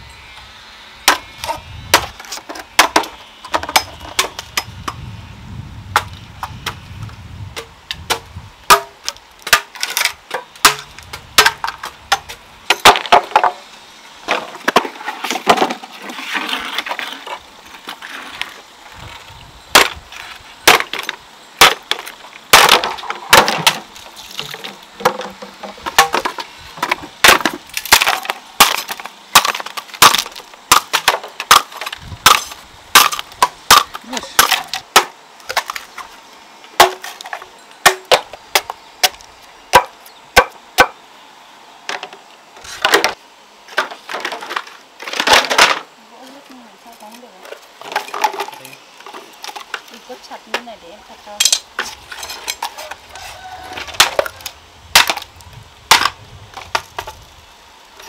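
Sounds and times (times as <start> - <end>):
sharp knocks and cracks: 1.1 - 5.0, 7.6 - 13.6, 19.7 - 20.0, 20.7 - 35.9, 36.8 - 41.0, 54.9 - 55.3, 55.9 - 57.2.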